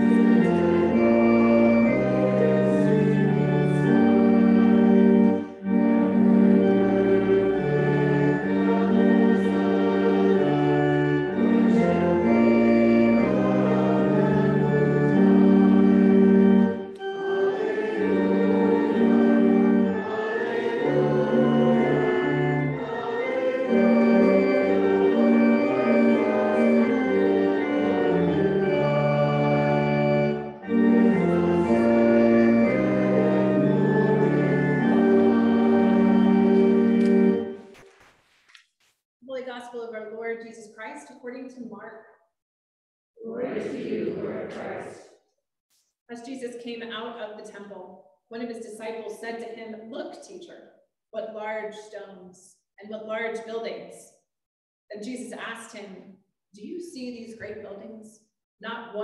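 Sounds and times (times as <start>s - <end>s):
church organ playing hymn chords: 0.0s - 37.7s
voices singing: 7.8s - 15.6s, 17.0s - 28.6s, 43.2s - 45.1s.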